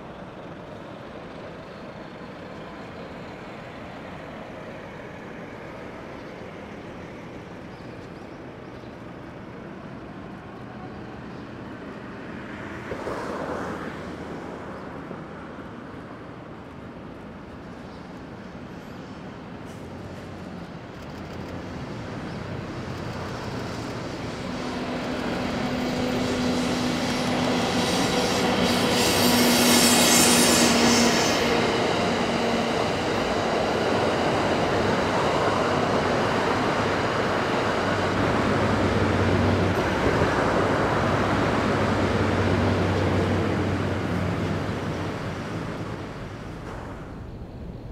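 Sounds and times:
train wheels rumbling on rails: 14.6s - 47.9s
electric locomotive humming: 15.9s - 47.9s.

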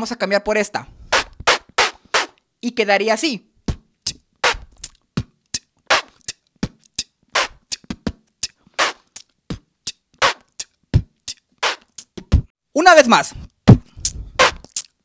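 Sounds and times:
person beatboxing: 1.1s - 2.4s, 3.7s - 12.5s, 13.4s - 15.0s.

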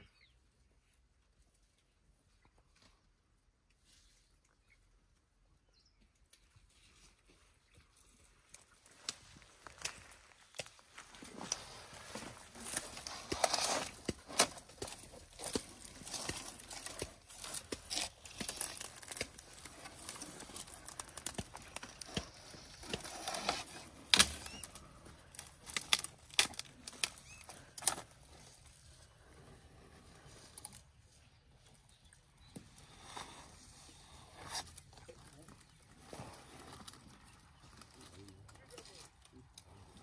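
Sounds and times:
dry branches crackling and rustling: 8.3s - 30.9s
twigs snapping: 8.5s - 28.6s
elephant browsing on thorny bush: 8.8s - 30.9s.

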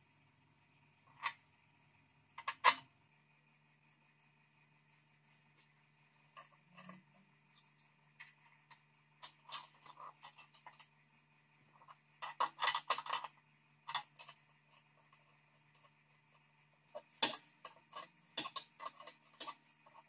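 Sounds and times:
wrench clinking on metal fittings: 16.9s - 20.0s.

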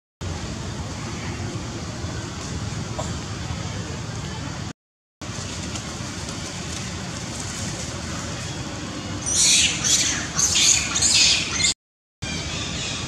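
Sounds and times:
monkey screaming: 9.2s - 11.7s.

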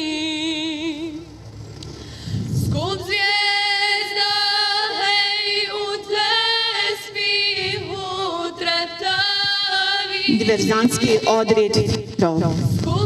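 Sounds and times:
woman singing a slow lament: 2.4s - 11.9s, 12.6s - 13.0s.

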